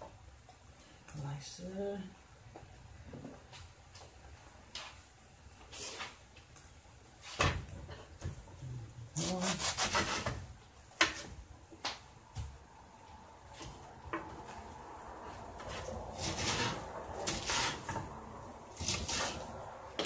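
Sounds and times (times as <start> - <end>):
knife slicing cabbage: 9.2 - 10.4, 15.6 - 17.9, 18.7 - 19.5.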